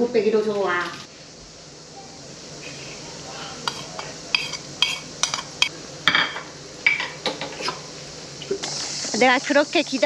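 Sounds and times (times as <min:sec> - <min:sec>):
utensils clinking against dishes: 0:03.7 - 0:07.8.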